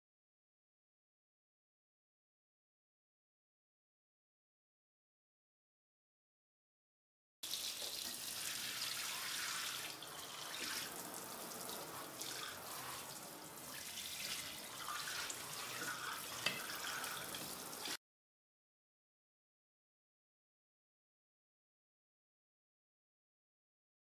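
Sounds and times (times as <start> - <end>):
tap water splashing into sink: 7.4 - 18.0.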